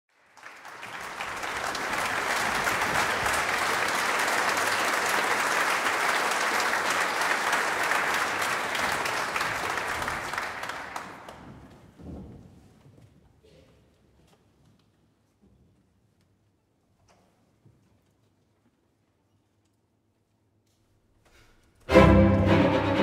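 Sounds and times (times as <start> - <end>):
audience applauding: 0.1 - 11.8.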